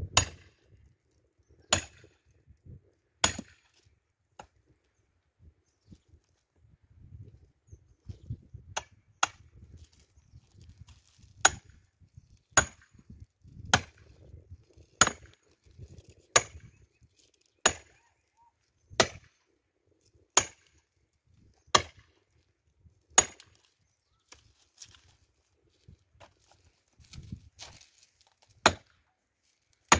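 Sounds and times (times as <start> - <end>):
axe chopping firewood: 0.0 - 0.5, 1.7 - 2.2, 3.2 - 3.8, 4.4 - 4.6, 8.6 - 9.7, 11.3 - 11.8, 12.5 - 14.2, 14.9 - 16.8, 17.6 - 18.0, 18.9 - 19.4, 20.4 - 20.8, 21.7 - 22.2, 23.1 - 23.7, 27.6 - 29.0.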